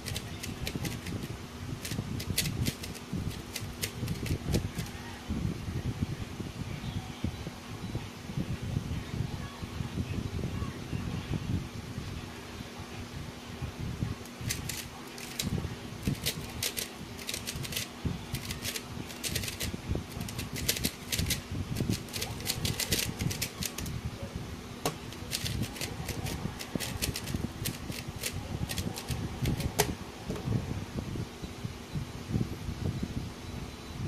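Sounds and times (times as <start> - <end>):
puzzle cube plastic clicks: 0.0 - 4.9, 14.4 - 23.9, 25.1 - 29.9.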